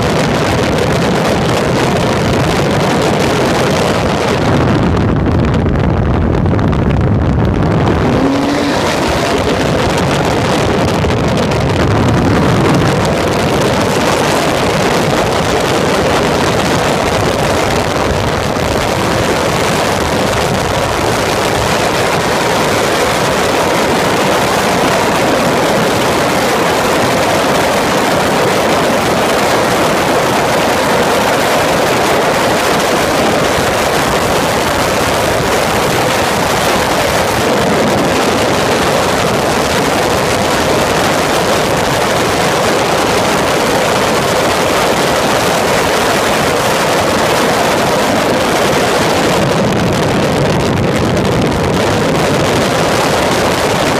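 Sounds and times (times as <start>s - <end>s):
wind and road noise: 0.0s - 53.9s
race car engine: 6.4s - 50.4s.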